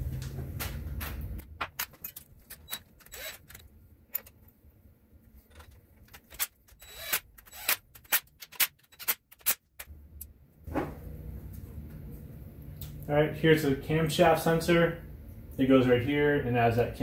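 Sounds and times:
tools and parts clattering: 0.5 - 4.5, 5.3 - 9.9.

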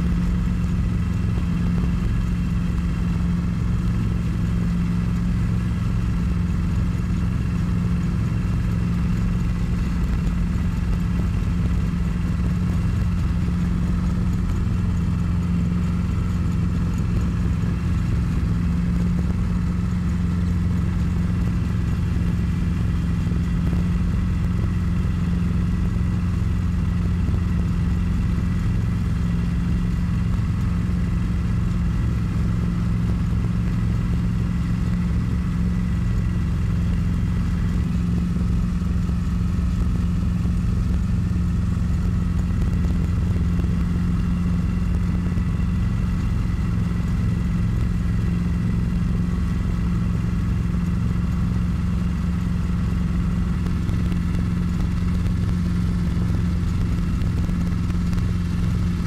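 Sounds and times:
helicopter engine and rotor: 0.0 - 34.5.

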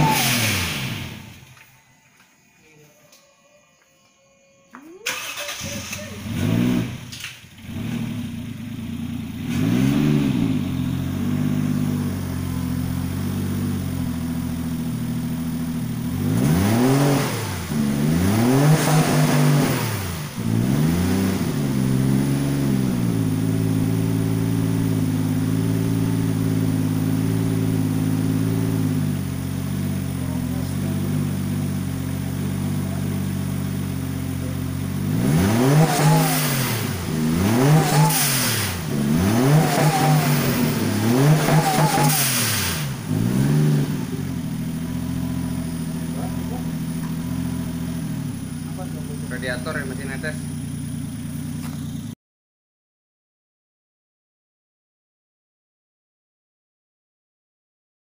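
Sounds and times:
car engine revving and idling: 0.0 - 2.0, 5.1 - 52.2.

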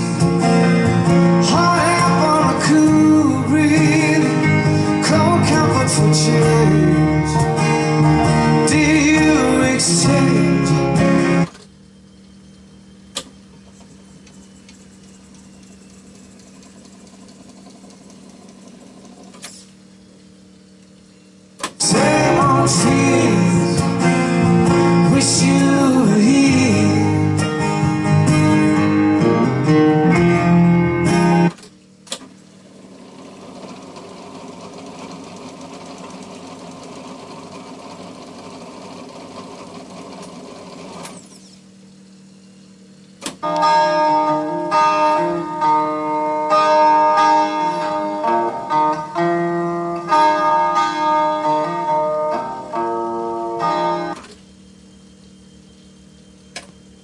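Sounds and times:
guitar music from tape speakers: 0.0 - 31.8, 32.6 - 57.0
tape transport whirring: 0.0 - 57.0
tape recorder click: 21.6 - 21.9, 43.2 - 43.8, 56.5 - 56.8.

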